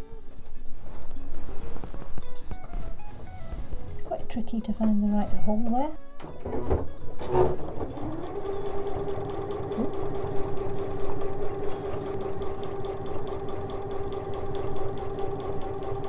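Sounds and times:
sewing machine stitching: 6.5s - 16.0s.

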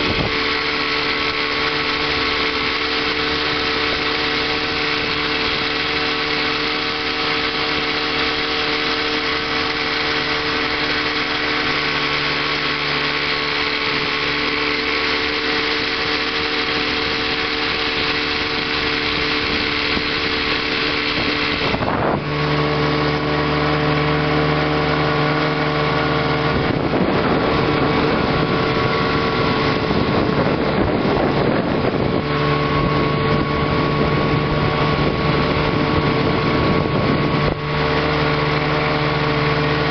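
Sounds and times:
outboard motor running at speed: 0.0s - 39.9s.

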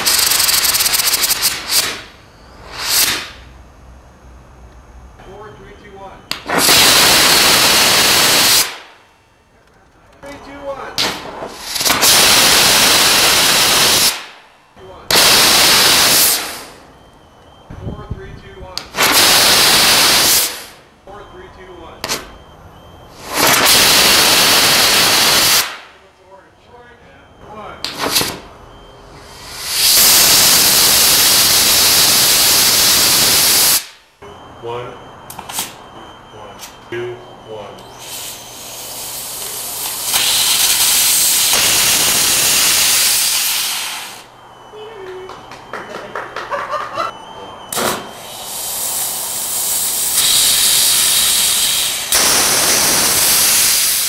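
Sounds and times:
rocket motor firing: 0.0s - 3.6s, 6.3s - 9.1s, 11.0s - 14.5s, 15.1s - 17.6s, 18.8s - 20.8s, 23.1s - 26.0s, 27.8s - 28.5s, 29.2s - 34.0s, 38.0s - 44.3s, 47.7s - 54.0s
sharp pop: 0.9s - 3.4s, 6.3s - 6.9s, 11.0s - 12.2s, 14.0s - 14.4s, 25.5s - 25.9s, 27.8s - 28.4s, 47.7s - 48.2s.

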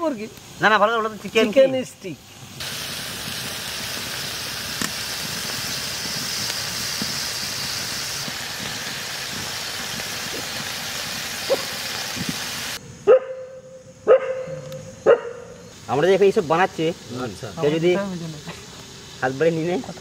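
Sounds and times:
meat sizzling on a griddle: 0.0s - 12.8s, 15.6s - 20.0s
dog barking: 11.5s - 11.7s, 13.0s - 15.6s.

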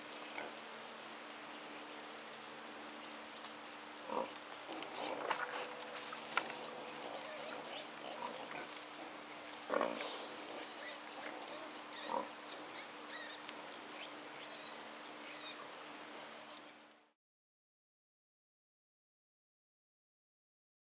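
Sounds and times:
faint steady hum: 0.0s - 17.2s
wild boar grunting: 4.0s - 13.4s.

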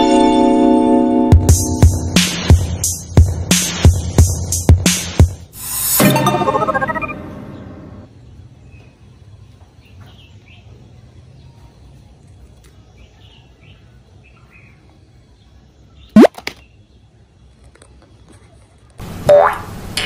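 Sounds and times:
chiming sparkly transition effect: 5.6s - 7.8s.

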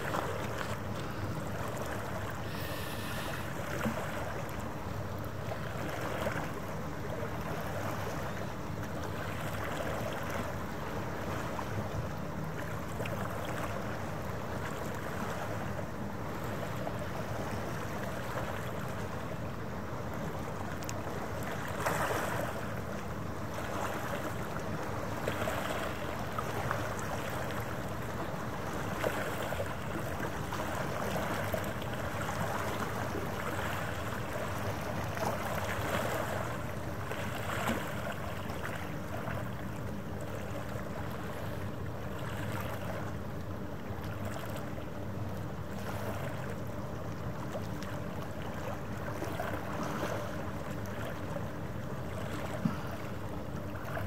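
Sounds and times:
low mechanical hum: 0.0s - 54.0s
small waves lapping at shore: 0.0s - 54.0s.

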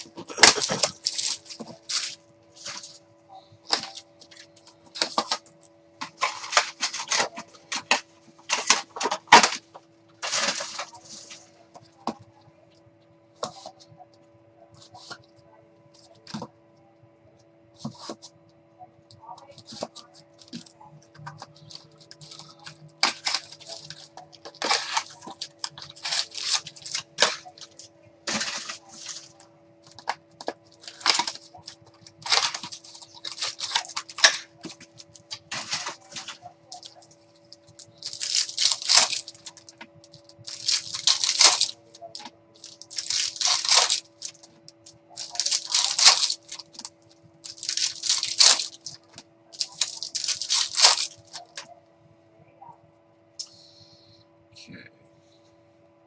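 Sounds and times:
cards shuffling: 0.0s - 2.9s, 19.6s - 37.0s, 37.8s - 39.8s, 40.4s - 44.5s, 45.2s - 46.9s
foil wrappers crinkling and tearing: 0.0s - 3.0s, 3.7s - 9.6s, 10.2s - 11.4s, 21.6s - 37.0s, 37.6s - 51.7s.

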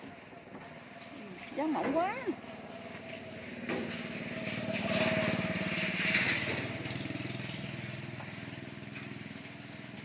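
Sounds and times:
vehicle engine running: 2.0s - 10.0s.

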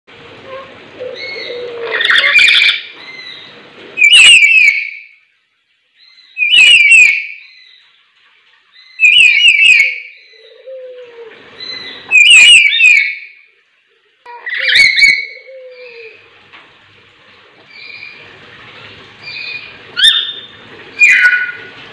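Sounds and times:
birds calling loudly: 1.0s - 5.2s, 6.0s - 8.0s, 8.8s - 13.4s, 14.3s - 16.2s, 19.2s - 21.8s.

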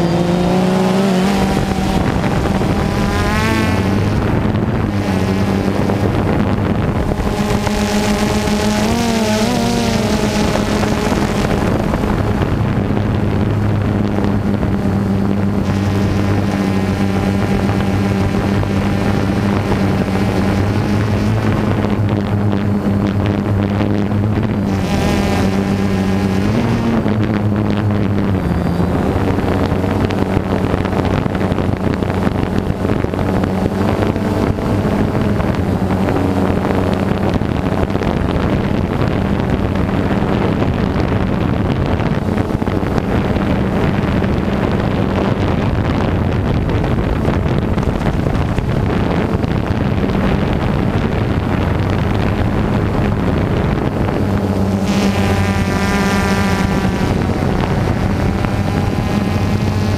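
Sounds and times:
drone propellers buzzing: 0.0s - 59.9s
wind noise on microphone: 0.0s - 59.9s.

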